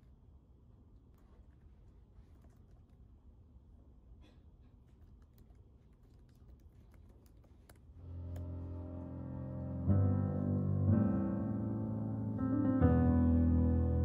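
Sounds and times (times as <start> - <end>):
typing on laptop keyboard: 4.9 - 7.9.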